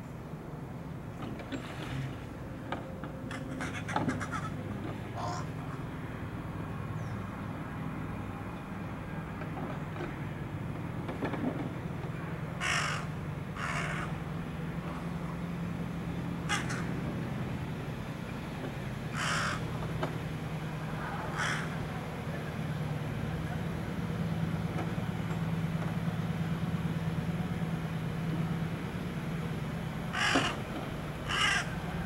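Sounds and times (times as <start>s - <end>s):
crow cawing: 3.3s - 4.6s, 5.2s - 5.5s, 12.6s - 14.2s, 16.5s - 17.0s, 19.1s - 19.7s, 21.2s - 21.8s, 30.1s - 30.6s, 31.2s - 31.8s.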